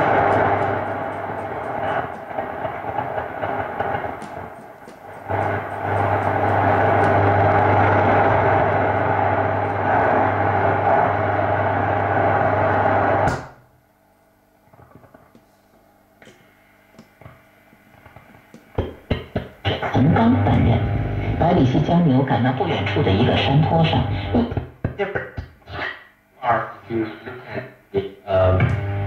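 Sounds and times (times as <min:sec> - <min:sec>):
radio static and hiss: 0:00.0 - 0:13.4, 0:16.2 - 0:29.0
low hum: 0:00.0 - 0:13.6, 0:18.0 - 0:24.6.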